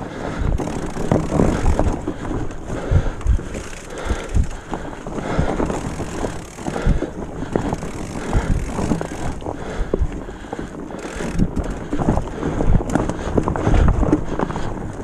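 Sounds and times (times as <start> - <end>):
bike rattling and knocking: 0.0 - 15.0
bike tyres rolling over leaves: 0.0 - 15.0
wind noise on microphone: 0.3 - 15.0.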